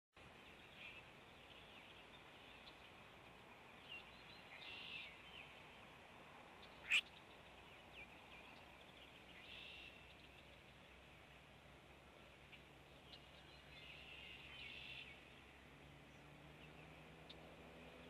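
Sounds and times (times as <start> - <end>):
faint bird chirps: 3.7 - 5.8, 6.6 - 11.0, 12.2 - 15.4.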